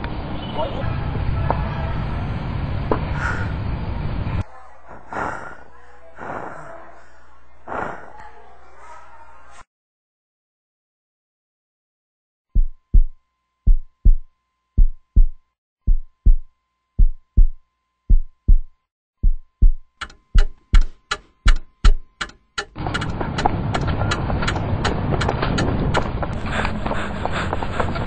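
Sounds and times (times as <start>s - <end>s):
heartbeat thumps: 12.5s - 28.0s
sharp ticks: 20.0s - 26.4s.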